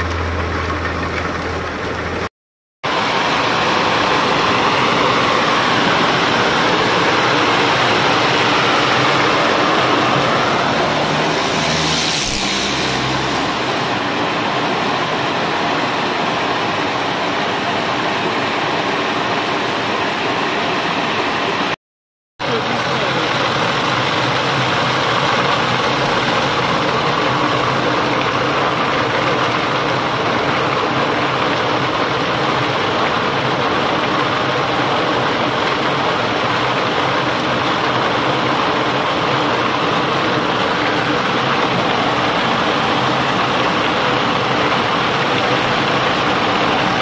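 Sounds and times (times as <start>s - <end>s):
walnut hulling machine running: 3.0s - 11.8s.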